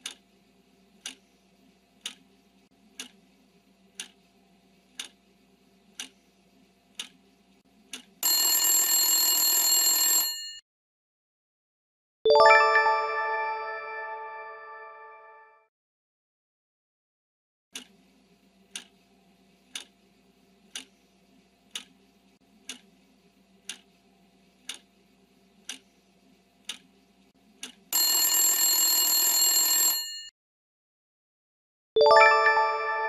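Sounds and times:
clock ticking: 0:00.0 - 0:00.2, 0:01.0 - 0:01.2, 0:02.0 - 0:02.2, 0:03.0 - 0:03.2, 0:04.0 - 0:04.2, 0:05.0 - 0:05.2, 0:06.0 - 0:06.2, 0:07.0 - 0:07.2, 0:18.7 - 0:18.9, 0:19.7 - 0:19.9, 0:20.7 - 0:20.9, 0:21.7 - 0:22.0, 0:22.7 - 0:22.9, 0:23.7 - 0:23.9, 0:24.7 - 0:24.9, 0:25.6 - 0:25.9, 0:26.6 - 0:26.9, 0:27.6 - 0:27.8
alarm bell ringing: 0:28.0 - 0:30.3, 0:32.1 - 0:33.0.

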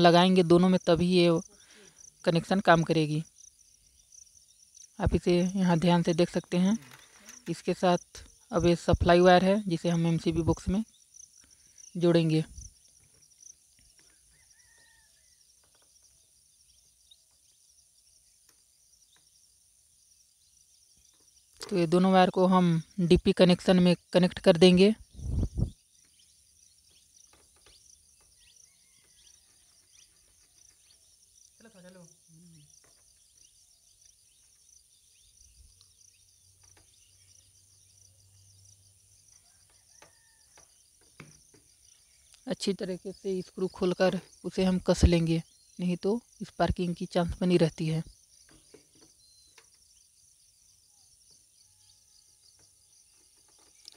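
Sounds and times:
high insect-like chirring: 0:00.0 - 0:53.9.

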